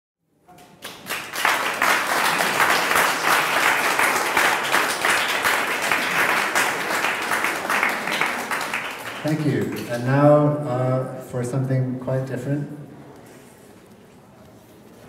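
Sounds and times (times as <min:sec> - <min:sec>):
audience applauding: 0:00.6 - 0:10.5.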